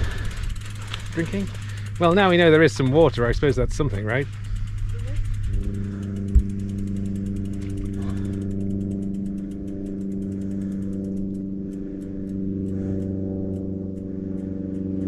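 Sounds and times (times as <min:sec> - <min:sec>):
small motor pulsing: 0:00.0 - 0:15.0.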